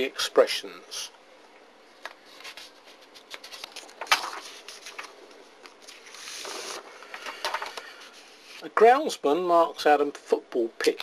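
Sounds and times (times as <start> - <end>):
paper rustling: 2.0 - 8.6
paper sliding on desk: 5.9 - 8.6.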